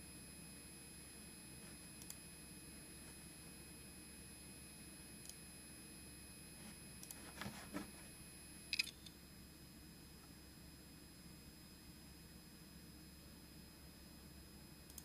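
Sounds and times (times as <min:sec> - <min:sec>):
hard disk high-pitched whine: 0:00.0 - 0:15.0.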